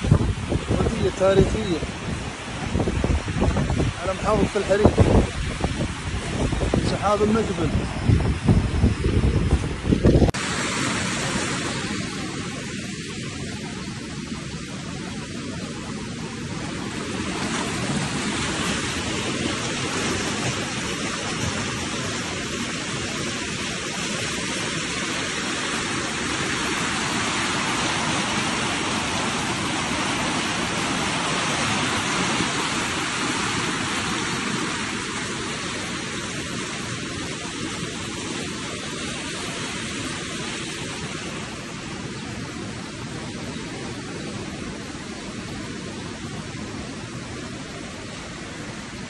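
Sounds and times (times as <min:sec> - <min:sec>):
floodwater rushing over ground: 0:00.0 - 0:49.0.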